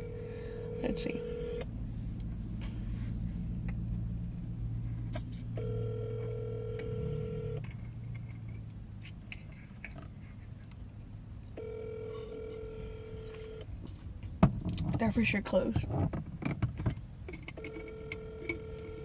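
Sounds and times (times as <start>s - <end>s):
phone ringback tone: 0.0s - 1.6s, 5.6s - 7.6s, 11.6s - 13.6s, 17.6s - 19.0s
low steady hum: 0.0s - 19.0s.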